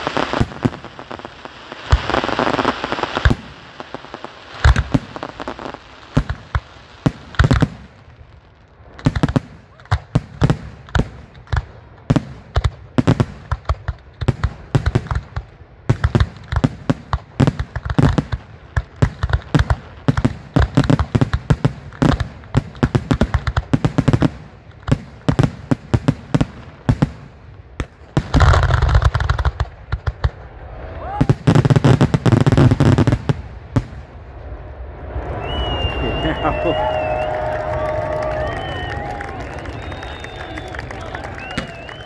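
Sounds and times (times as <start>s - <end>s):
firework shells bursting: 38.3s - 42.0s.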